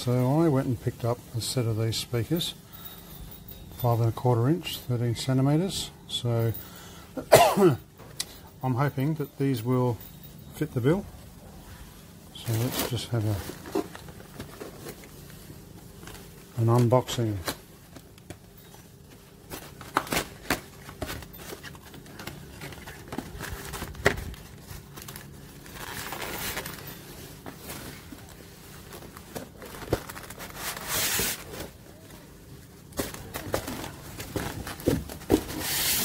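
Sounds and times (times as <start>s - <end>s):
plastic packaging crinkling: 8.8s - 36.0s.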